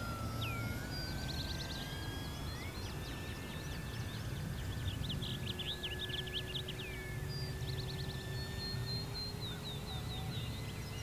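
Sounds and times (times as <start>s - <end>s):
birds chirping: 0.0s - 11.0s
model plane motor whining: 0.0s - 11.0s.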